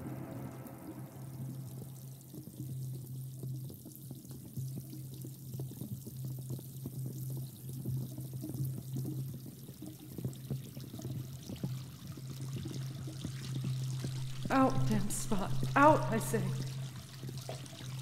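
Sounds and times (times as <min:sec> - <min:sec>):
water running: 0:12.6 - 0:18.0
low steady hum: 0:14.2 - 0:17.2.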